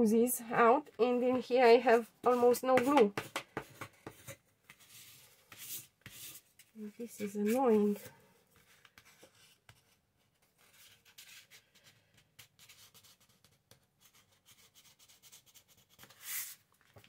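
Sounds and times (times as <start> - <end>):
light taps on paper: 2.7 - 4.8.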